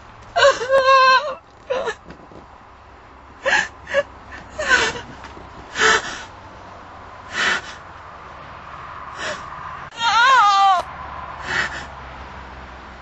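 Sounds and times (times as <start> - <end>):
person sobbing: 0.4 - 2.0.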